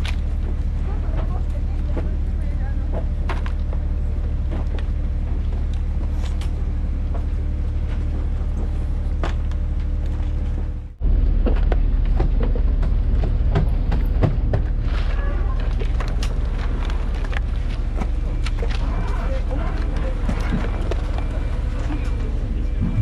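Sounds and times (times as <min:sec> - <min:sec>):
engine droning: 0:00.0 - 0:23.0
knocking and clatter: 0:11.4 - 0:14.9.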